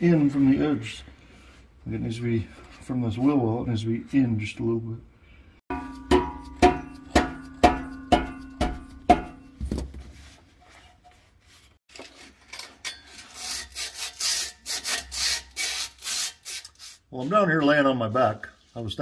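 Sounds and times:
hammer striking metal pipe: 5.7 - 9.6.

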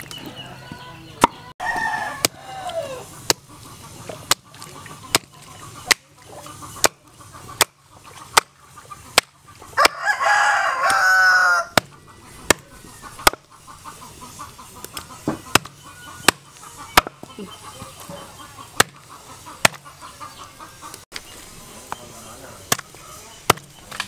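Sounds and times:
faint chicken clucking: 0.0 - 23.9
rooster crowing: 1.6 - 3.1, 9.8 - 11.8
hatchet chopping on wooden block: 6.8 - 10.0, 11.7 - 13.5, 15.3 - 17.3, 18.8 - 19.0, 19.6 - 19.9, 23.5 - 23.7.

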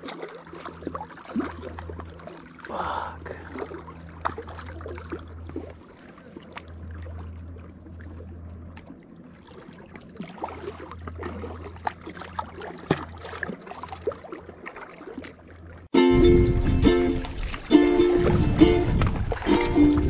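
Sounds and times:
water lapping and splashing: 0.0 - 20.0
low rumble: 16.1 - 20.0.

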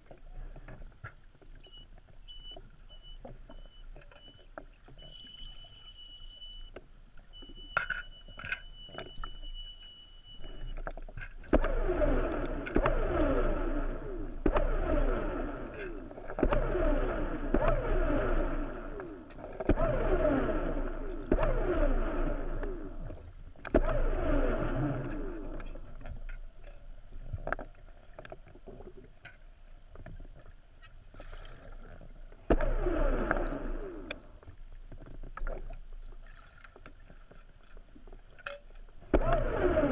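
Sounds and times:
faint high steady whine: 0.0 - 27.6
water bubbling and sloshing: 0.0 - 39.9.

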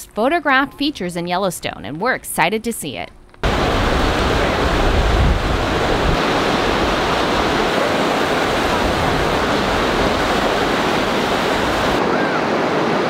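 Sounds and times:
water rushing down a channel: 3.4 - 12.1.

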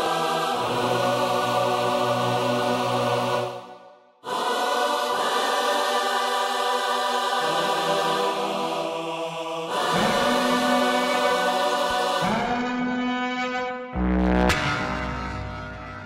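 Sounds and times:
slow sustained music chords: 14.0 - 16.0.

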